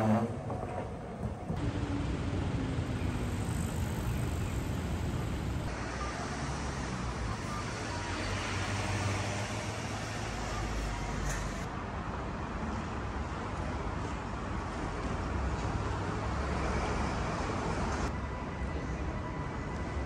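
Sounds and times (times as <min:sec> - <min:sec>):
road traffic passing: 0:00.0 - 0:11.8.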